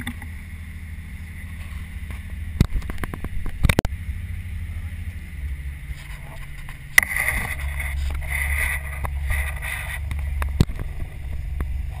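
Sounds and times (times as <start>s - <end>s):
boat engine rumble: 0.0s - 12.0s
thumb rubbing on camera: 6.0s - 10.7s.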